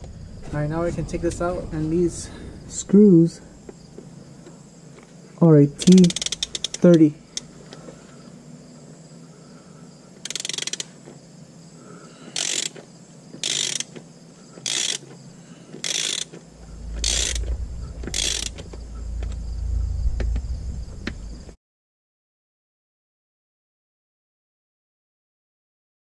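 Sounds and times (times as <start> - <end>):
low rumble: 0.0 - 4.9, 16.5 - 21.6
ratchet wrench ratcheting: 5.8 - 7.5, 10.2 - 11.0, 12.3 - 12.8, 13.4 - 14.0, 14.6 - 15.1, 15.8 - 18.7.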